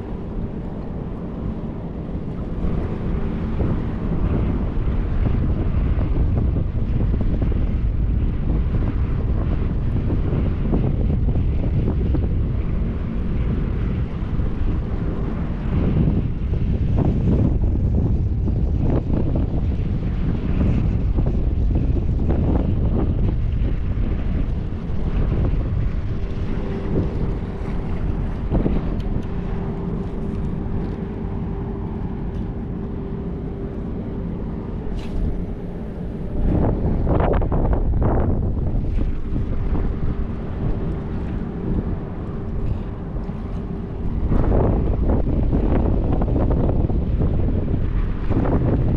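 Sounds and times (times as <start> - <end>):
steady droning tone: 0.0 - 48.9
wind buffeting microphone: 0.0 - 48.9.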